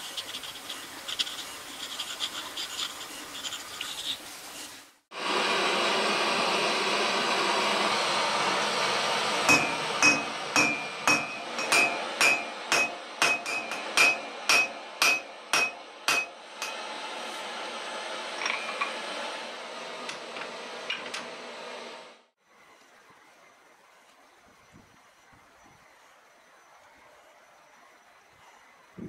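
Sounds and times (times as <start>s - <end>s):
gas forge rushing: 5.1s - 22.4s
hammer ringing on anvil: 9.5s - 16.8s.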